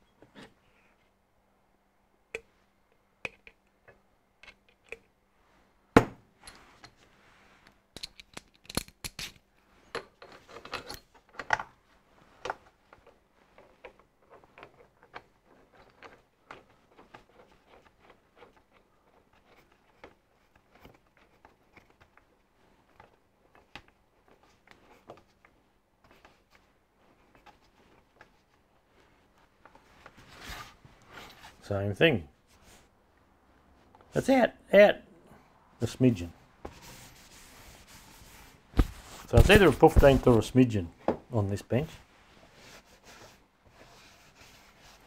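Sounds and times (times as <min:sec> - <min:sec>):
metal bolts clinking and scraping: 0:09.9 - 0:11.6.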